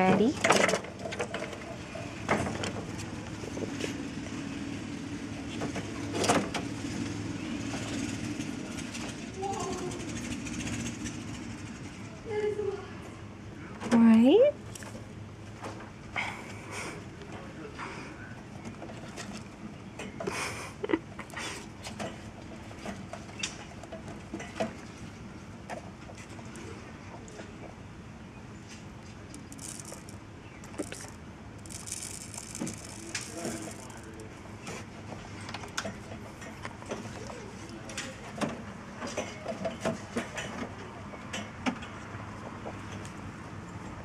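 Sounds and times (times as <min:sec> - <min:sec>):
steady low hum: 0:00.0 - 0:39.0
rabbits chewing: 0:28.6 - 0:38.4.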